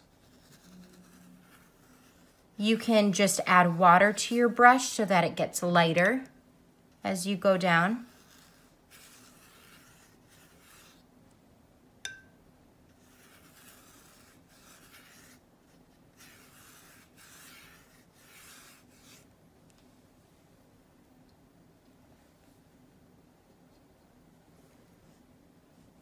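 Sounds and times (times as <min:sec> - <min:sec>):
watercolour brush swishing on paper: 0:00.0 - 0:06.2, 0:07.1 - 0:11.1, 0:12.9 - 0:20.4, 0:23.4 - 0:26.0.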